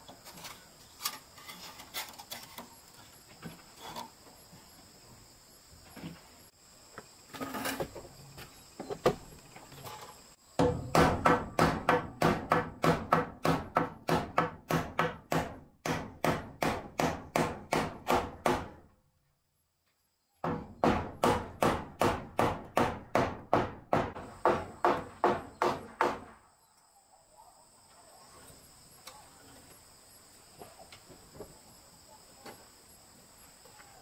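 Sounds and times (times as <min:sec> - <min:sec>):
hammer striking nail into wood: 0:10.6 - 0:18.8, 0:20.4 - 0:26.3.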